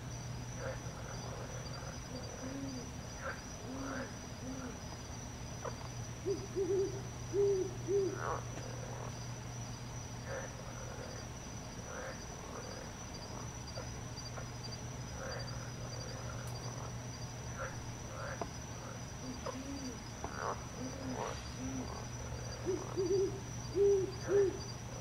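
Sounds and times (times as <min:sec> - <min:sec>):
insect trill: 0:00.0 - 0:25.0
owl hooting: 0:00.6 - 0:04.8, 0:05.6 - 0:09.0, 0:17.6 - 0:24.7.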